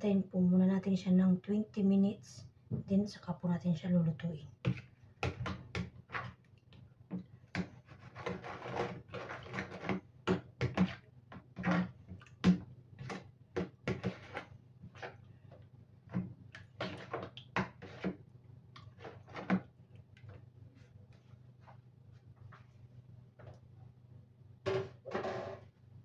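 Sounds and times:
wet mixing noise: 4.6 - 21.2
spoon scraping plastic bowl: 6.1 - 6.4, 7.6 - 15.3, 16.1 - 18.2, 18.8 - 20.4.

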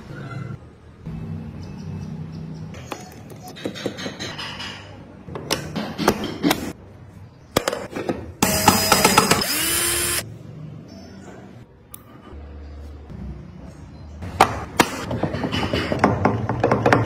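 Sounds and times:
small power tool whining: 8.4 - 10.2.

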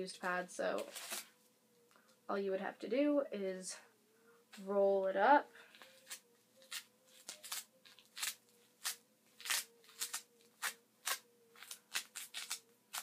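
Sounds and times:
panty liner crinkling: 5.6 - 13.0.

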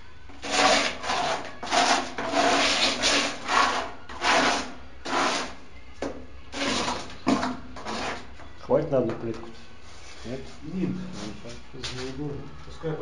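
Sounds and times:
trowel scraping bucket: 0.4 - 5.6, 6.5 - 8.3.

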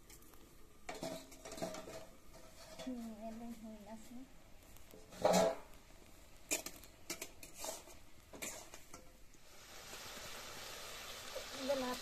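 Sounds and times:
metal spatula scraping wok: 0.9 - 4.1, 5.0 - 5.7, 6.5 - 9.2
meat sizzling in wok: 5.8 - 12.0.

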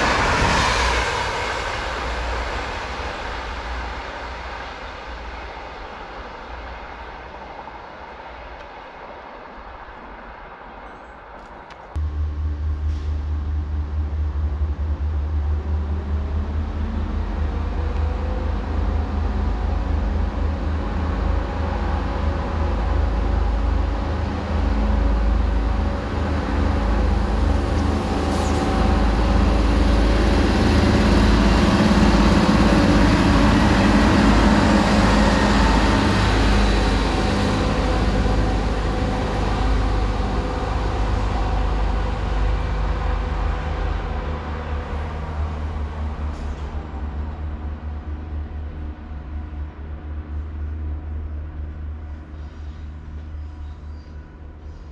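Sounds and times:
diesel train engine rumble: 0.0 - 54.9.

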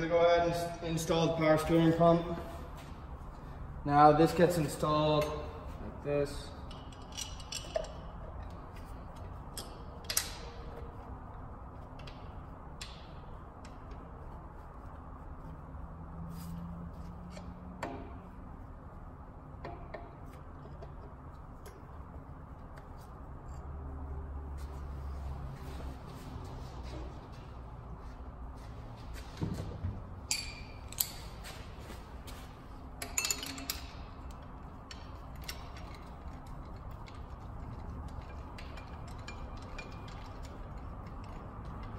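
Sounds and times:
steady low hum: 0.0 - 41.9
metal tool and bolts clinking: 6.3 - 11.0, 30.2 - 31.6, 33.0 - 41.9.

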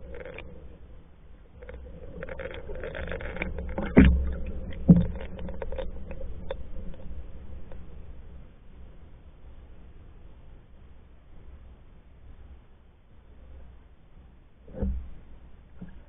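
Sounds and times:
water sloshing along canoe hull: 1.6 - 7.6.

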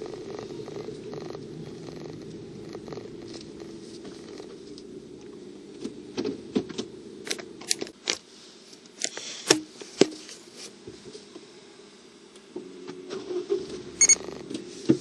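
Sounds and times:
car engine idling: 0.0 - 7.2.

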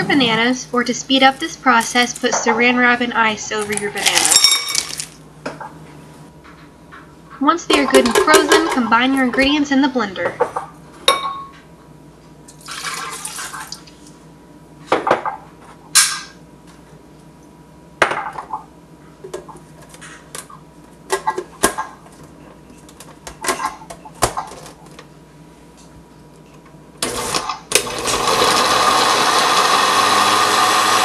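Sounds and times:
kitchen utensils clinking: 3.6 - 5.2, 7.7 - 9.0.

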